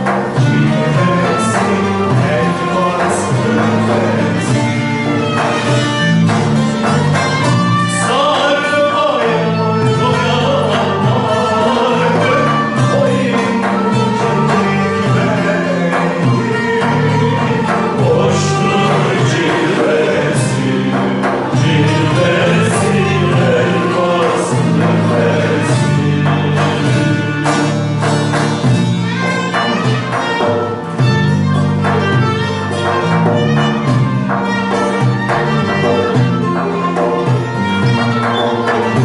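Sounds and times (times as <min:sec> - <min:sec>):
man singing: 0:00.0 - 0:05.3, 0:07.3 - 0:28.0
long-necked lutes playing: 0:00.0 - 0:39.0.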